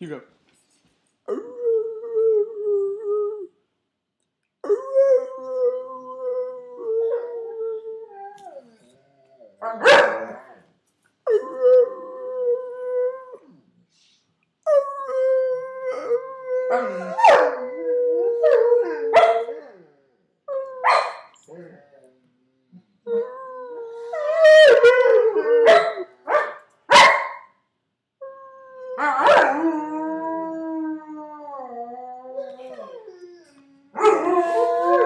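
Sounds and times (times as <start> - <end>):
dogs howling: 15.0 - 20.0, 24.2 - 26.5, 29.0 - 35.0.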